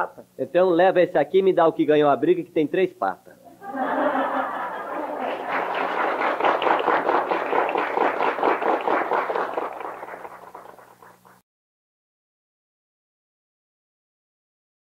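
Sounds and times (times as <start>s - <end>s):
audience applause: 3.7s - 11.4s.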